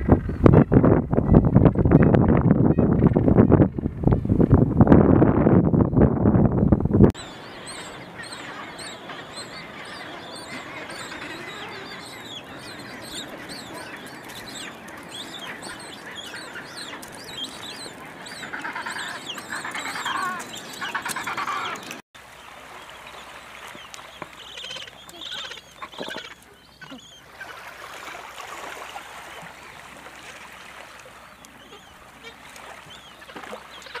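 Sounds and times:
penguins chirping calls: 7.3 - 22.0
louder lower penguin calls: 15.3 - 21.8.

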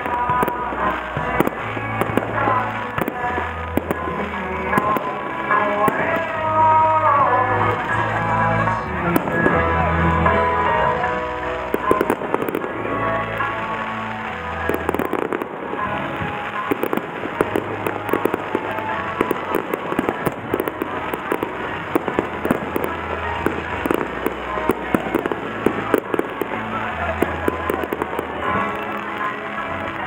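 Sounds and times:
fireworks popping and crackling: 0.0 - 30.0.

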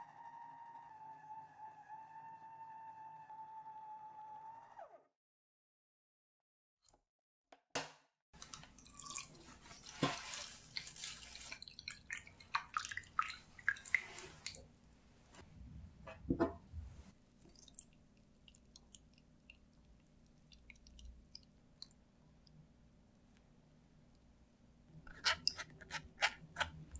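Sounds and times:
juice splashing into steel bowl: 8.4 - 14.6.

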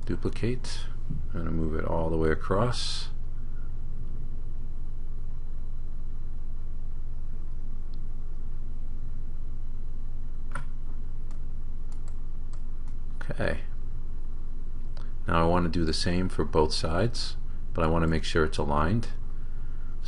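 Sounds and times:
steady low hum: 0.0 - 20.0
computer mouse click: 11.3 - 13.0.

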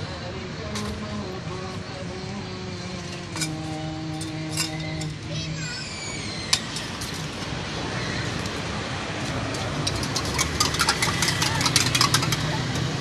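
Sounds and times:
street noise: 0.0 - 13.0
utensil clinking against metal cup: 3.0 - 5.2, 9.4 - 12.9.

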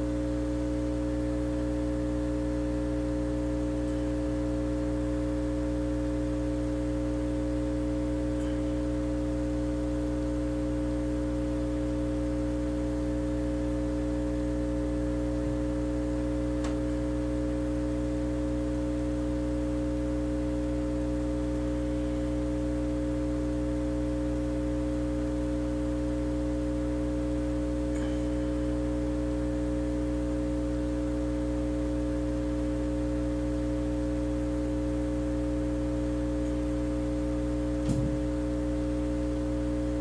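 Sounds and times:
hot air station humming: 27.9 - 29.4.

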